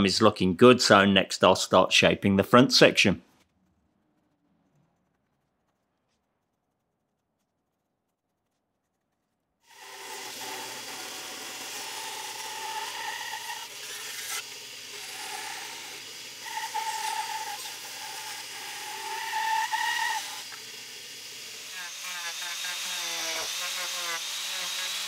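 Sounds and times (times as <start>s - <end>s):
bandsaw cutting wood: 9.7s - 25.0s.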